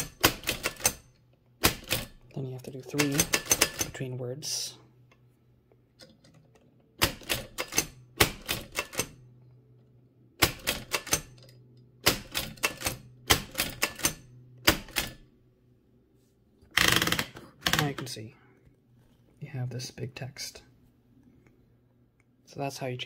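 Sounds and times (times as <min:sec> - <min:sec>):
typewriter clacking: 0:00.0 - 0:02.2, 0:02.9 - 0:04.0, 0:07.0 - 0:09.2, 0:10.4 - 0:11.4, 0:12.0 - 0:15.2.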